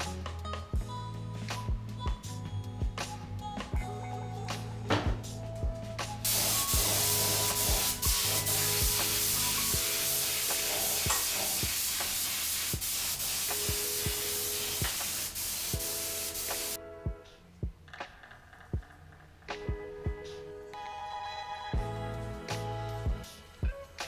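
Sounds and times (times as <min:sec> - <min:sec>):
background music with beat: 0:00.0 - 0:24.0
spray gun hissing: 0:06.3 - 0:16.8.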